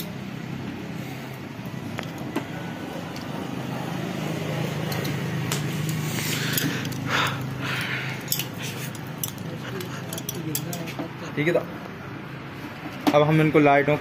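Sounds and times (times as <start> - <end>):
low mechanical hum: 0.0 - 14.0
faint clicks and rustles of wires: 1.8 - 3.3.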